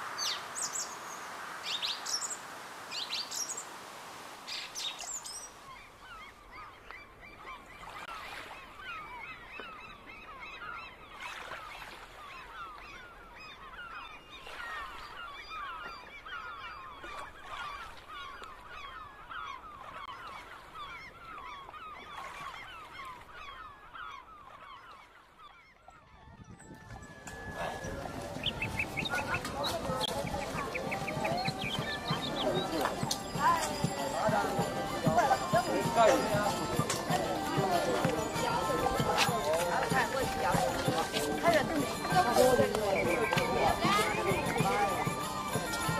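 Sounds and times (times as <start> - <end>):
flock of birds calling: 4.5 - 45.9.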